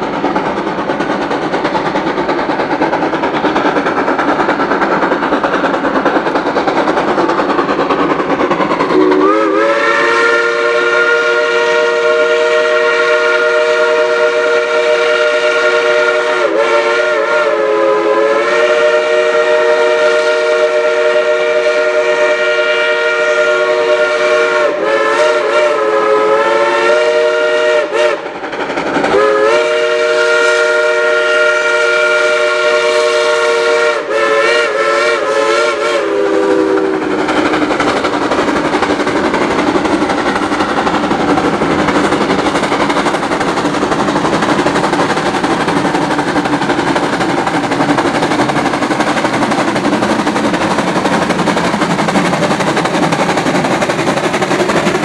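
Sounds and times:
steam locomotive chime whistle: 0:08.9 - 0:28.2, 0:29.1 - 0:37.2.

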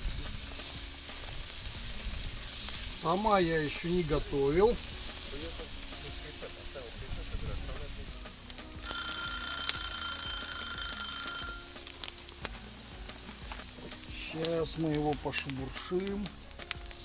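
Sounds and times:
fish sizzling in hot oil: 0:00.0 - 0:17.0
high ringing tone with hiss: 0:08.8 - 0:11.9.

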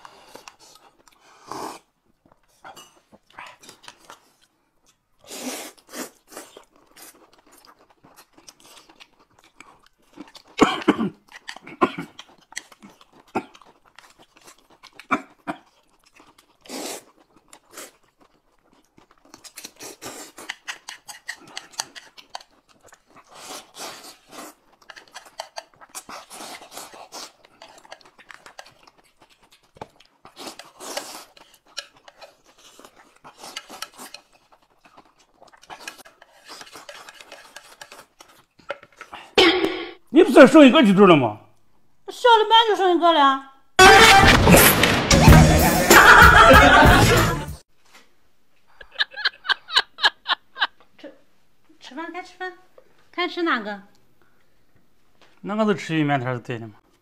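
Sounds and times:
chewing: 0:00.0 - 0:39.4
noodles slurping: 0:11.2 - 0:39.4.

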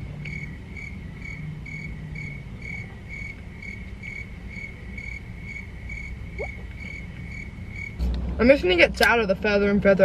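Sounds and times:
cricket chirping: 0:00.1 - 0:08.0.

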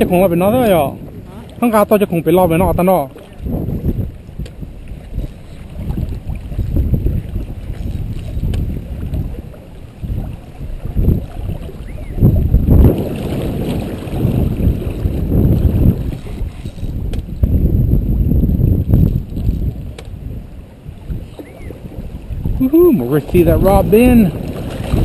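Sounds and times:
wind buffeting microphone: 0:00.0 - 0:25.0.

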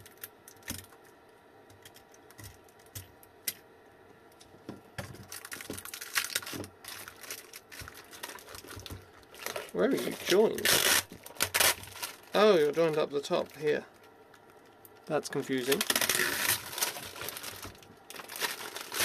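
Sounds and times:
wrapping crinkling: 0:05.0 - 0:19.0.

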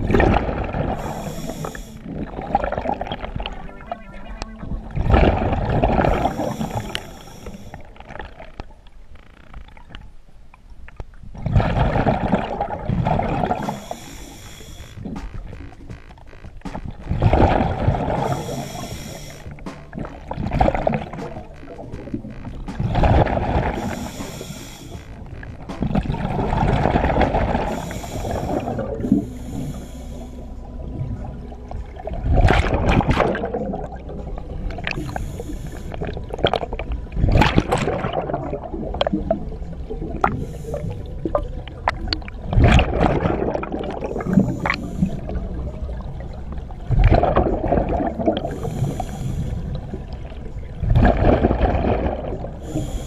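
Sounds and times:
exhaled bubbles rushing: 0:00.0 - 0:08.6, 0:11.3 - 0:16.0, 0:16.8 - 0:29.3, 0:30.6 - 0:52.9
regulator hissing inhale: 0:00.9 - 0:02.1, 0:06.0 - 0:07.9, 0:13.5 - 0:15.1, 0:18.1 - 0:19.6, 0:23.7 - 0:25.2, 0:27.5 - 0:30.7, 0:34.8 - 0:36.2, 0:40.2 - 0:41.1, 0:44.0 - 0:45.4, 0:48.4 - 0:50.0, 0:52.6 - 0:53.0.

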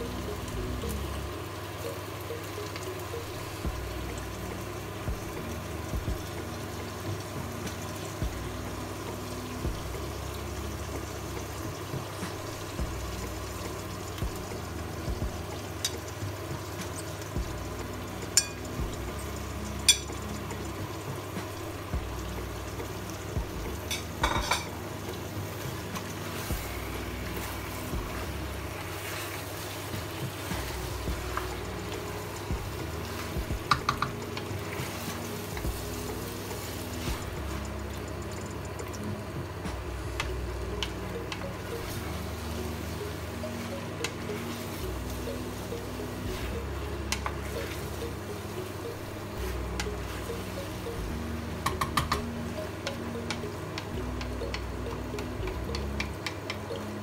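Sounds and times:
wooden spoon stirring food in pot: 0:10.9 - 0:57.0
spoon knocking against pot: 0:33.6 - 0:34.2, 0:51.6 - 0:52.2.

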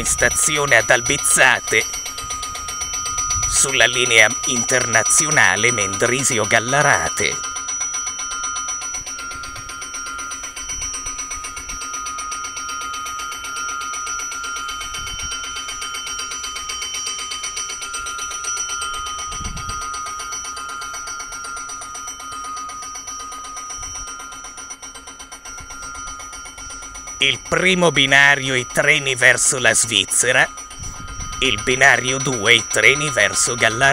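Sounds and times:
electric station bell ringing: 0:00.0 - 0:33.9.

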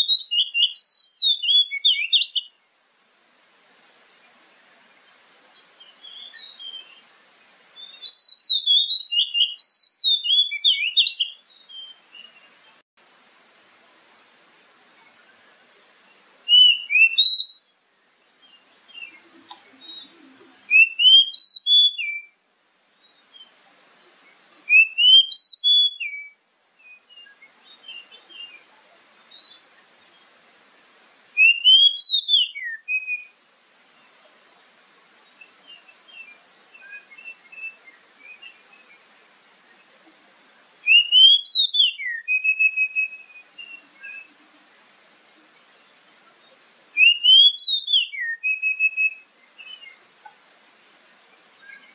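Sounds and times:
bird whistled song phrases: 0:00.0 - 0:02.6, 0:05.6 - 0:07.0, 0:07.8 - 0:12.6, 0:16.5 - 0:17.7, 0:18.5 - 0:22.4, 0:23.1 - 0:28.7, 0:31.4 - 0:33.4, 0:35.2 - 0:39.0, 0:40.8 - 0:44.4, 0:46.5 - 0:50.0, 0:51.6 - 0:51.9
bird soft twittering: 0:16.5 - 0:17.6.

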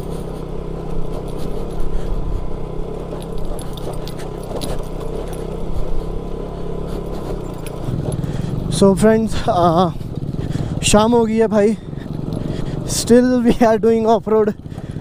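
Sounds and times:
motorcycle engine running: 0:00.0 - 0:15.0
metallic rattling and clicks: 0:03.1 - 0:05.8.

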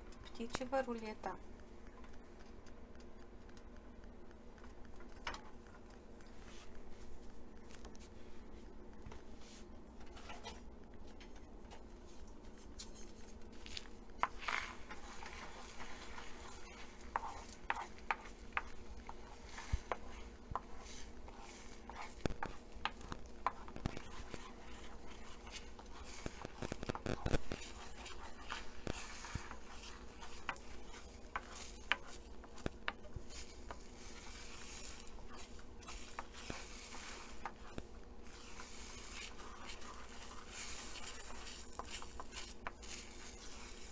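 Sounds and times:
omelette sizzling in a pan: 0:12.5 - 0:43.9
wooden spatula scraping a pan: 0:12.6 - 0:43.9.

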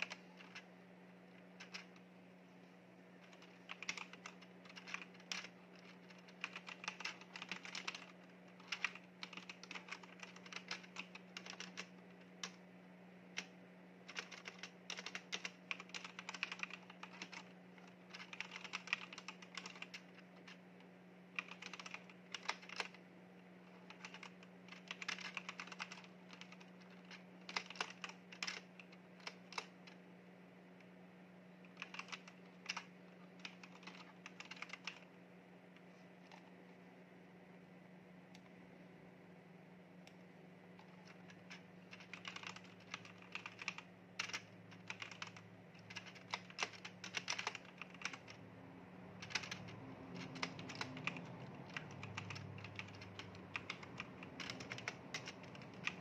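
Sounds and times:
faint low hum: 0:00.0 - 0:56.0
mechanical keyboard key clicks: 0:21.4 - 0:23.0, 0:41.9 - 0:48.3, 0:49.2 - 0:56.0.

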